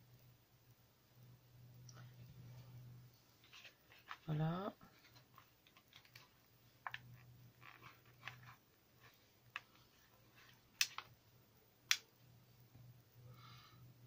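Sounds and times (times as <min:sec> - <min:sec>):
faint low hum: 0:00.0 - 0:14.0
plastic packaging clicks and crackles: 0:05.1 - 0:08.6, 0:09.5 - 0:11.1.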